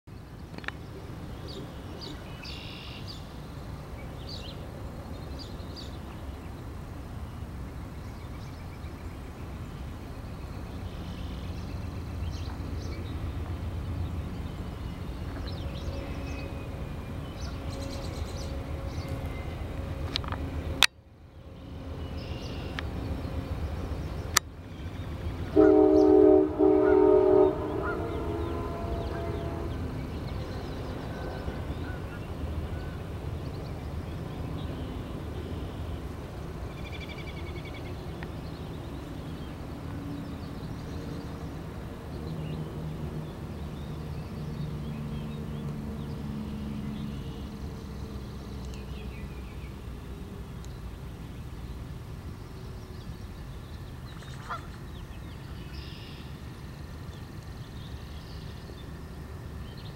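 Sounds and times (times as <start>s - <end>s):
waterfowl honking: 25.5s - 29.9s.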